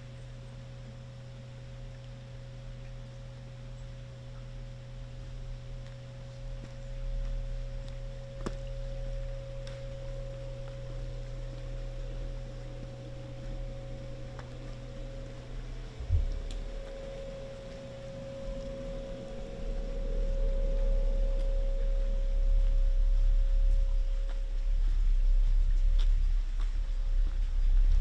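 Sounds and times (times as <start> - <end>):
steady hum: 0.0 - 28.0
constant high tone: 8.0 - 24.5.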